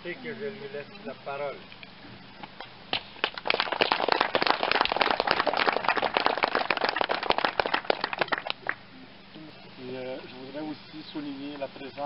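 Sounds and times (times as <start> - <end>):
crowd clapping: 3.2 - 8.8.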